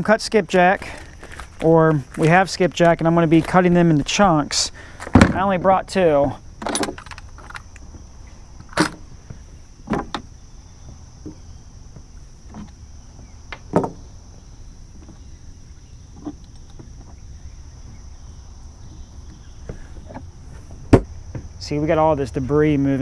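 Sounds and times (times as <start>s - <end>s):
crickets droning: 0.0s - 23.0s
fishing tackle clicks and knocks: 6.6s - 8.0s.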